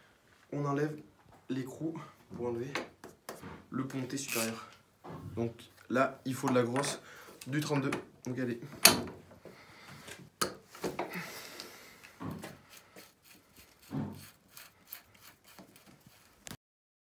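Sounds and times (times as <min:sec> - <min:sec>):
metal scraping: 0:12.1 - 0:16.6.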